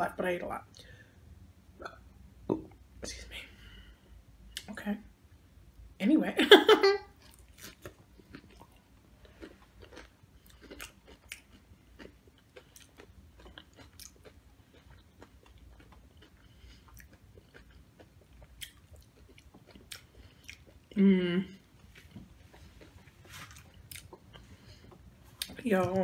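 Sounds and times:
chewing crunchy chips: 0:07.2 - 0:21.0, 0:21.7 - 0:25.6.

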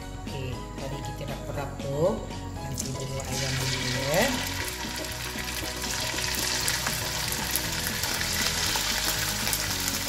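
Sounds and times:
chicken sizzling in hot oil: 0:02.7 - 0:10.0.

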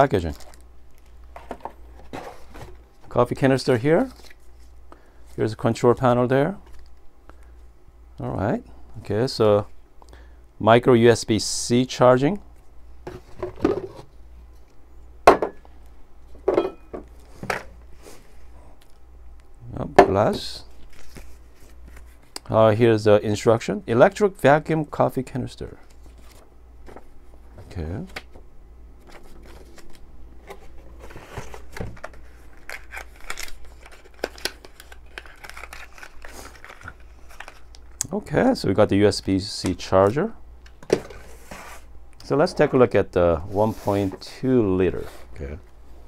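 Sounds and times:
cardboard and paper rustling: 0:01.3 - 0:03.2, 0:20.4 - 0:22.4, 0:25.8 - 0:28.4, 0:29.0 - 0:37.7.

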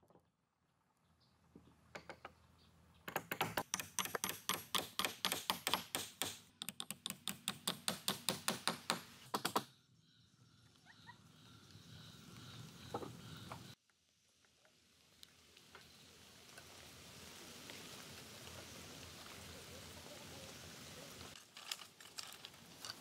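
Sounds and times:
hand tool striking wood: 0:03.1 - 0:09.7.

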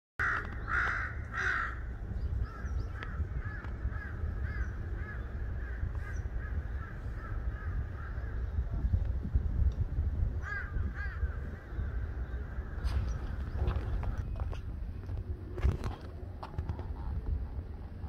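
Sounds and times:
crow cawing: 0:00.2 - 0:08.5, 0:10.4 - 0:12.8
low rumble: 0:00.2 - 0:18.0.

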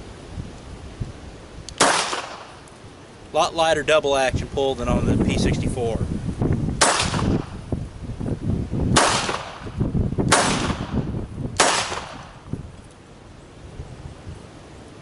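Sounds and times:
wind rumble on microphone: 0:00.0 - 0:15.0
pistol shots: 0:01.8 - 0:02.6, 0:06.8 - 0:07.5, 0:08.9 - 0:12.4.

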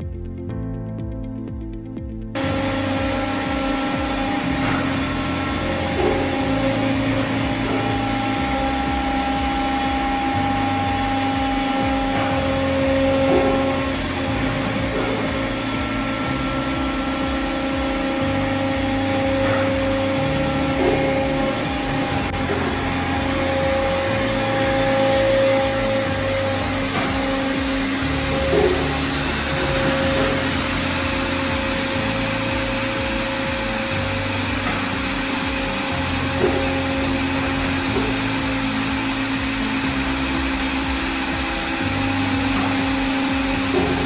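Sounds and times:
hydraulic pump machine hum: 0:02.3 - 0:44.0.

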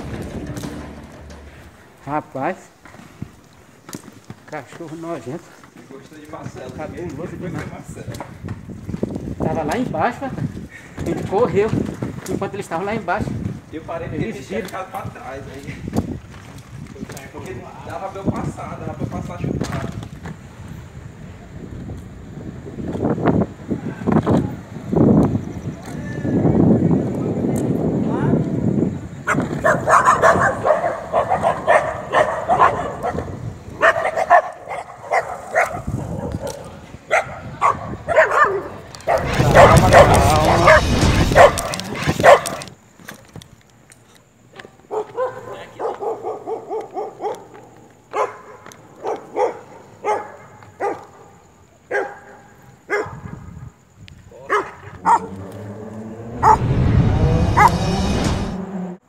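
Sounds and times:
loud low noise: 0:00.0 - 0:02.3, 0:39.1 - 0:42.7, 0:55.0 - 0:59.0
dogs barking aggressively: 0:29.2 - 0:42.8, 0:44.9 - 0:53.3, 0:54.5 - 0:56.7, 0:57.6 - 0:57.8.

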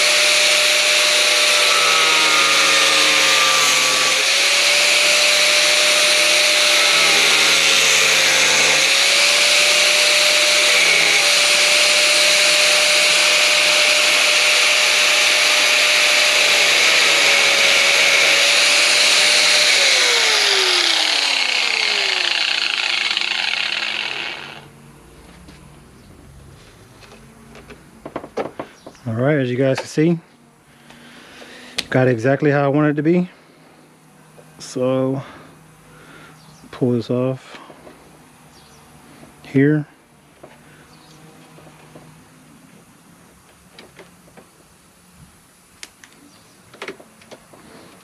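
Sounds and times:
angle grinder cutting fiberglass: 0:00.0 - 0:24.7
grinder winding down: 0:00.0 - 0:24.8.

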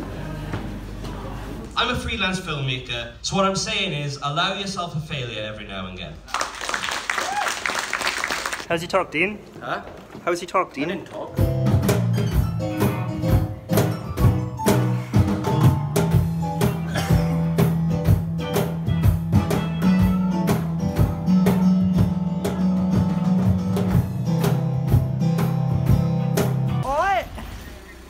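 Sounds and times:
drum kit: 0:11.2 - 0:28.0.

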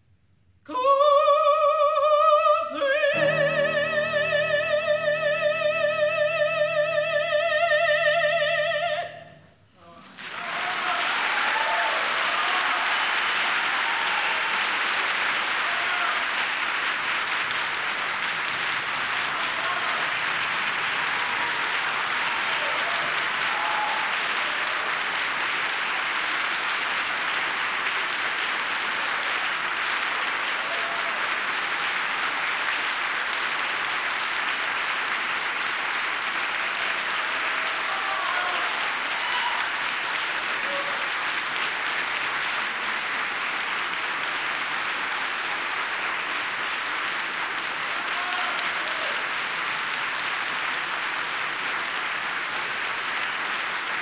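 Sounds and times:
audience applauding: 0:10.0 - 0:54.0.

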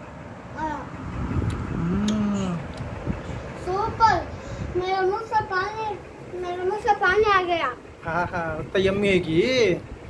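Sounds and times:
person humming mmm: 0:01.7 - 0:02.8.

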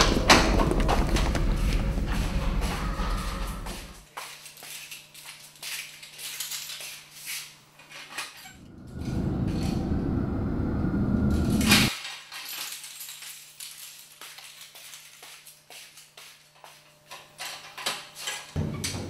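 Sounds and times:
loud low rumble: 0:00.0 - 0:04.0, 0:08.6 - 0:11.9.

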